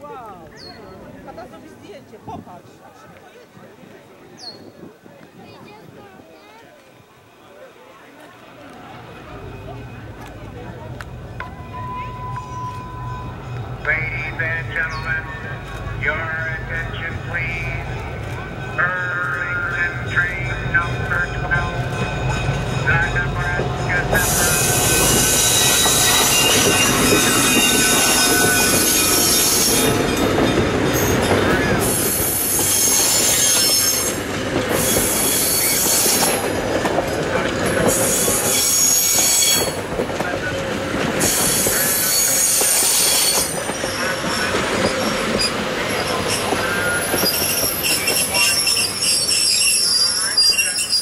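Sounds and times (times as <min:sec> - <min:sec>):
diesel locomotive passing: 0:07.1 - 0:51.0
train wheels squealing and clattering: 0:24.1 - 0:51.0.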